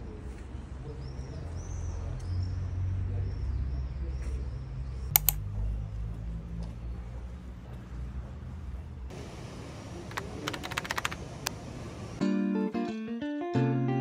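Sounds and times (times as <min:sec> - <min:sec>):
street low rumble: 0:00.0 - 0:12.2
sharp clicks: 0:05.1 - 0:05.4, 0:10.1 - 0:11.6.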